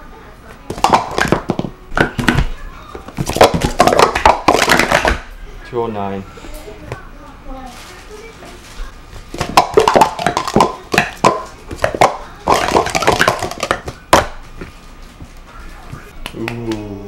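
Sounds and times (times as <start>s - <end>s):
plastic cups clattering: 0.7s - 5.2s, 9.3s - 14.4s.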